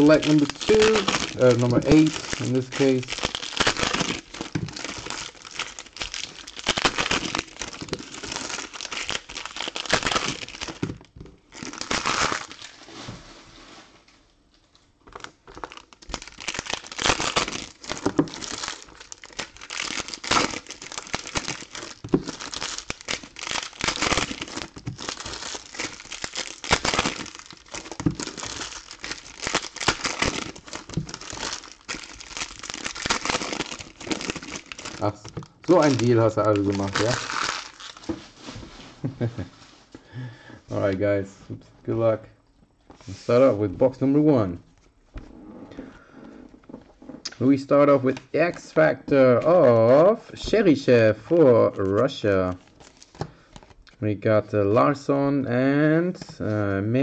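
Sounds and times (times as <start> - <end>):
foil wrappers crinkling and tearing: 0.0 - 12.8, 15.0 - 38.6, 49.5 - 53.8.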